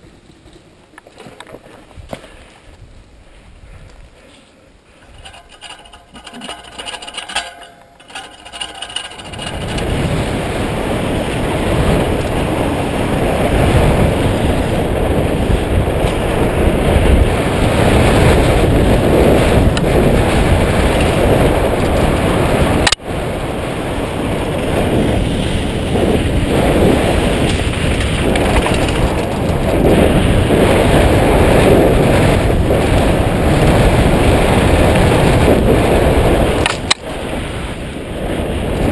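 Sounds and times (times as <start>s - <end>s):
tyre and frame rattle: 4.9s - 10.7s, 19.3s - 21.8s, 27.0s - 31.0s
wind rush over microphone: 4.9s - 38.9s
clicks and handling noises: 5.0s - 10.1s, 27.4s - 29.6s.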